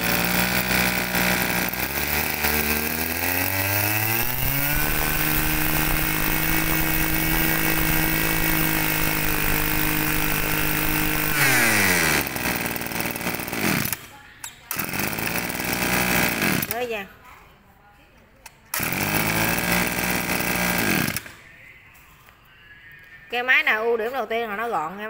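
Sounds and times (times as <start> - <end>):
brush cutter engine revving: 0.0 - 14.1, 14.7 - 16.9, 18.7 - 21.4.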